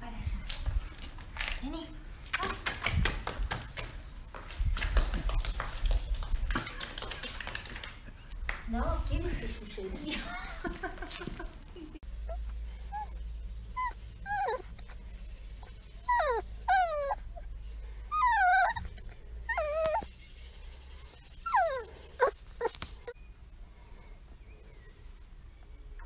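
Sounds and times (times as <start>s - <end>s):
puppy whining: 12.2s - 20.1s, 20.9s - 23.2s.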